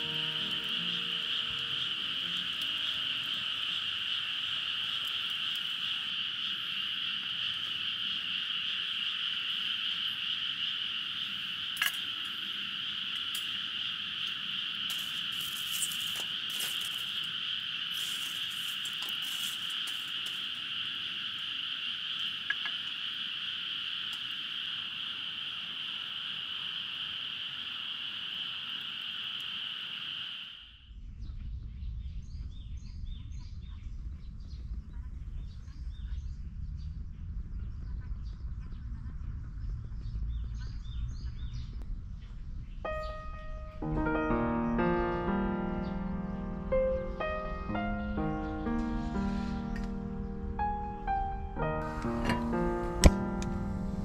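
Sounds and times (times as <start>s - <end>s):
night animal chorus: 0.0s - 54.0s
wood fire crackling: 14.9s - 20.6s.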